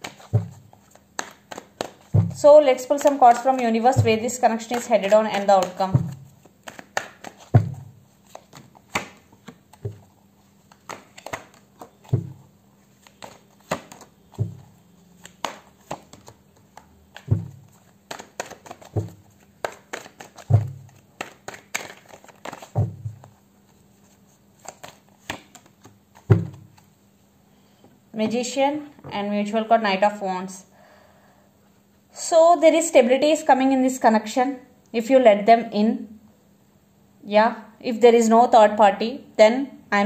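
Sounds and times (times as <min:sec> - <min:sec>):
cards flicking and tapping: 0:00.0 - 0:10.1, 0:10.7 - 0:23.3, 0:24.6 - 0:26.9
dull thud: 0:02.1 - 0:02.4, 0:03.9 - 0:04.3, 0:07.5 - 0:07.9, 0:12.1 - 0:12.4, 0:17.3 - 0:17.6.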